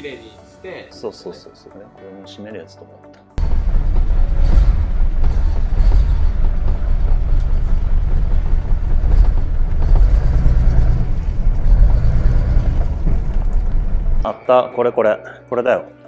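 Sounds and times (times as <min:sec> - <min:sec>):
car engine running: 0:03.4 - 0:14.3.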